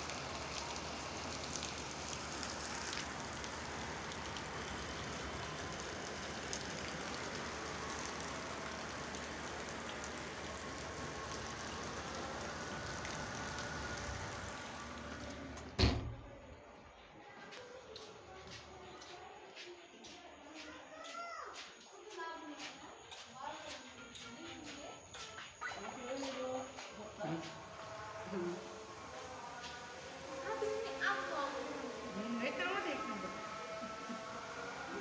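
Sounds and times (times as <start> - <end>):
floodwater rushing: 0.0 - 16.0, 27.0 - 35.0.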